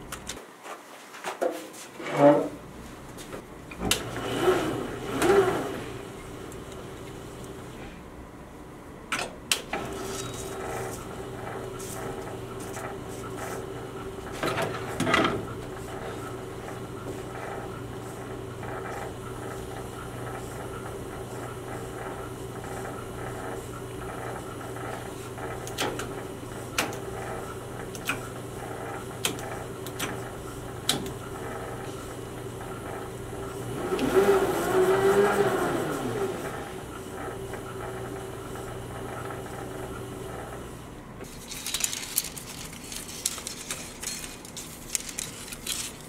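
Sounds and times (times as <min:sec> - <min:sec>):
editing table motor hum: 0:03.7 - 0:08.0, 0:09.7 - 0:46.0.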